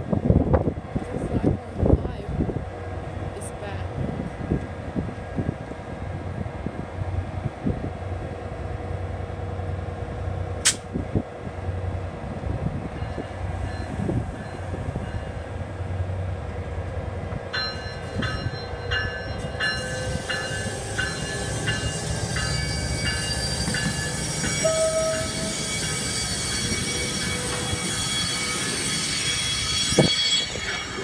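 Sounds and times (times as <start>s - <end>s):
diesel locomotive rumbling: 0.0s - 31.0s
bell ringing: 17.6s - 31.0s
wheel squeal: 22.2s - 31.0s.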